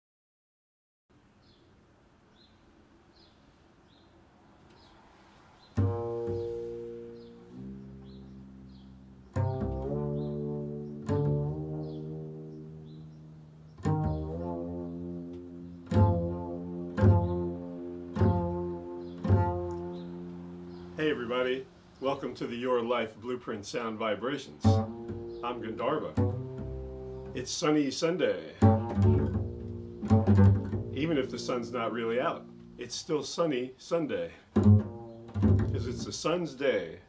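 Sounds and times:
high faint chirp: 4.7s - 9.5s
double bass plucked notes: 5.8s - 23.1s, 24.0s - 33.0s, 34.4s - 36.4s.

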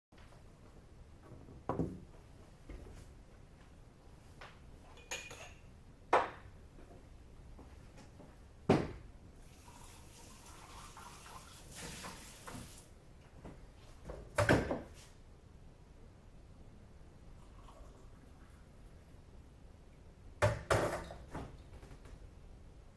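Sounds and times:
dishes knocking and clinking: 4.9s - 6.5s
water running from a tap: 9.4s - 12.9s.

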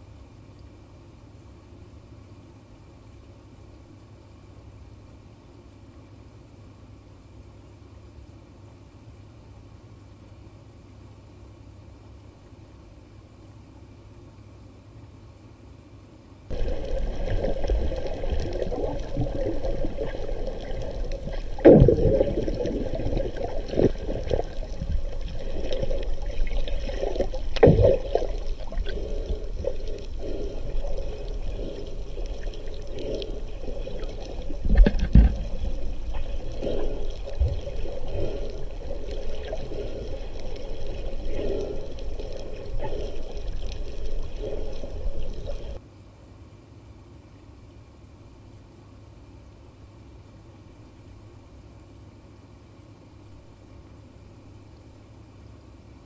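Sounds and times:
water gurgling and sloshing: 16.5s - 45.8s.

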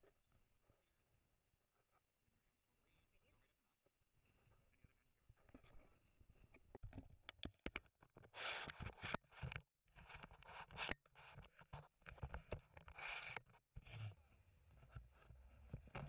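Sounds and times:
camera case rubbing and scraping: 8.3s - 9.5s, 10.1s - 14.1s.

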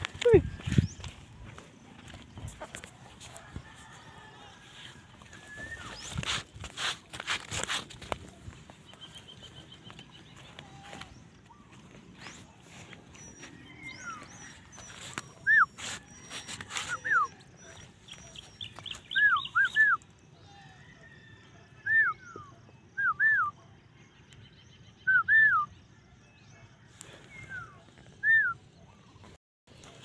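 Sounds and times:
puppy whimpering: 13.0s - 18.3s.

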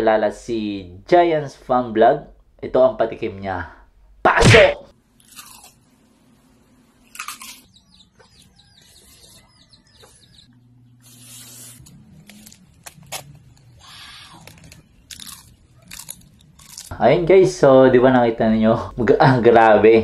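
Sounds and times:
crunching bites of crispy food: 5.1s - 5.9s, 7.0s - 7.8s, 11.1s - 16.9s
chickens clucking: 7.7s - 10.6s.

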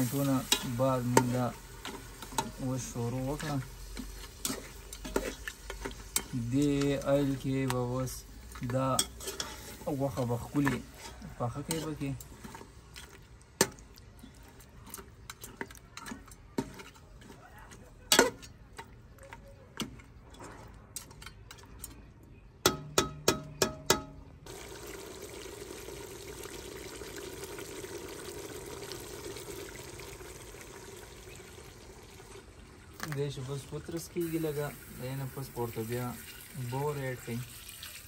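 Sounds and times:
meat hissing in pot: 0.0s - 6.4s, 34.2s - 38.0s
spoon scraping a metal pot: 0.0s - 7.4s, 8.5s - 13.2s
spoon clanking on pot: 8.6s - 12.6s, 14.9s - 17.4s, 18.1s - 24.2s.

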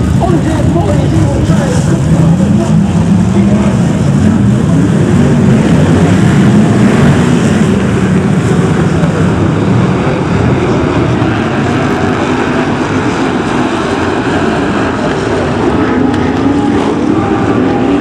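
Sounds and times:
racing car engines roaring: 0.0s - 18.0s.

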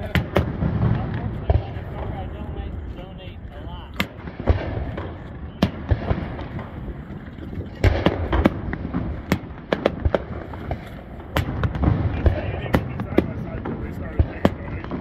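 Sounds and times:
fireworks booming and cracking: 0.0s - 2.9s, 4.0s - 15.0s.

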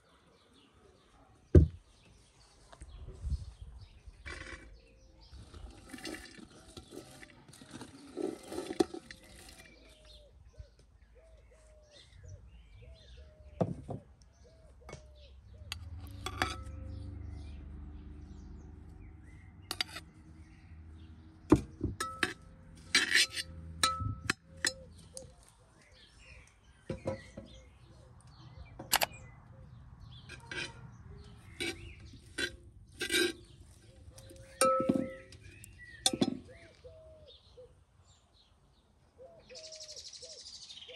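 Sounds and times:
metal skimmer clinking against pot: 15.7s - 16.9s, 22.0s - 24.9s, 31.5s - 33.5s, 34.2s - 36.5s.

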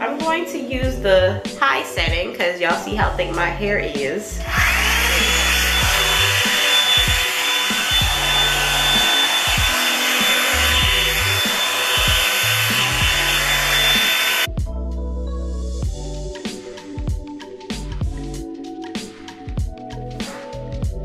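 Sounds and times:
background music with steady beat: 0.0s - 21.0s
hair dryer running: 4.3s - 14.6s.

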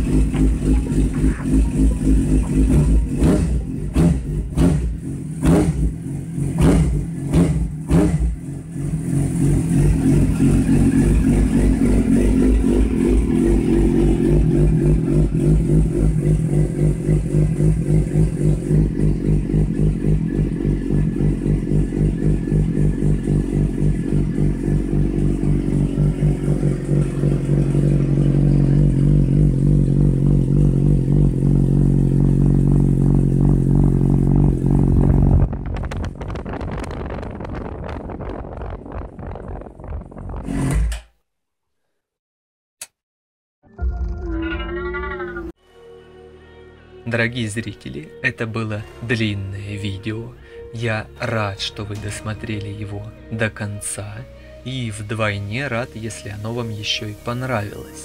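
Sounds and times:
motorcycle engine idling: 0.0s - 36.3s
motorcycle engine starting: 0.0s - 41.1s.

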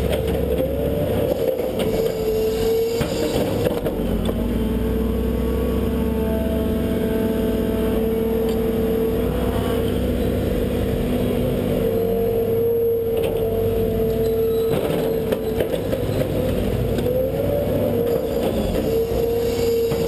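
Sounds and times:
excavator clanks: 0.0s - 4.6s, 13.0s - 20.0s
excavator engine droning with whine: 0.0s - 20.0s.

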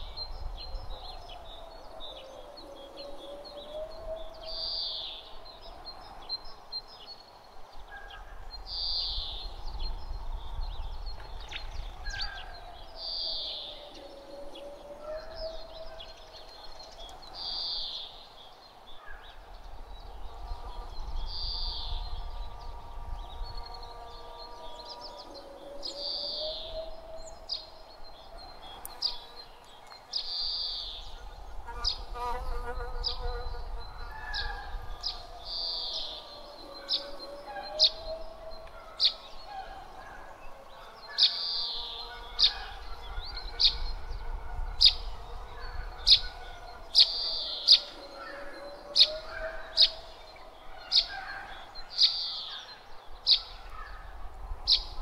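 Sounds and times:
chirps and clicks: 0.0s - 5.6s, 11.0s - 18.1s, 25.2s - 31.2s, 34.6s - 40.1s
low breeze rumble: 0.0s - 51.9s, 52.8s - 55.0s.

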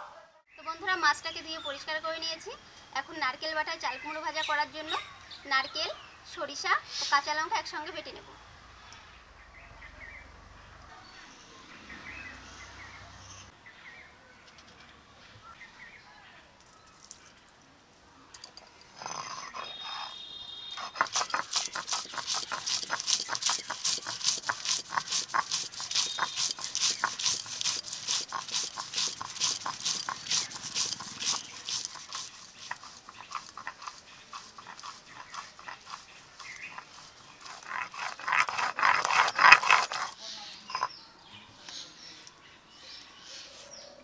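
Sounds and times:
stone roller grinding on slab: 19.0s - 41.0s.

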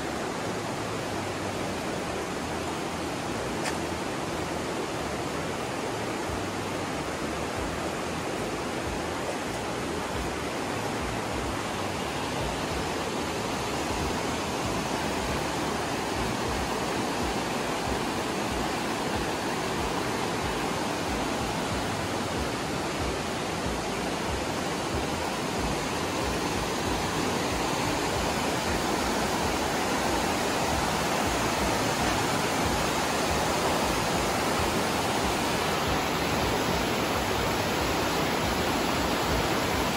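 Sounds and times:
fast-flowing river water: 0.0s - 39.9s.

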